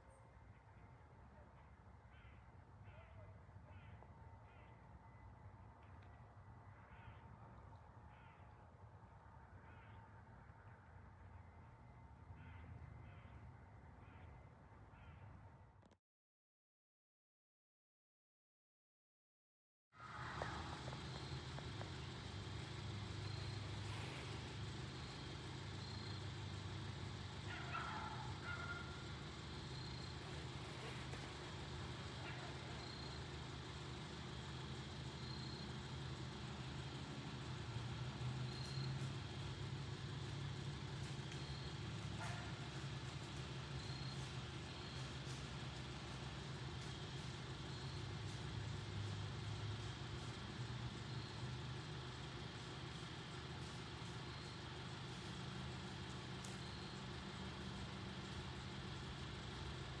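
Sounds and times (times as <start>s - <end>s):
vehicle engine idling hum: 20.0s - 60.0s.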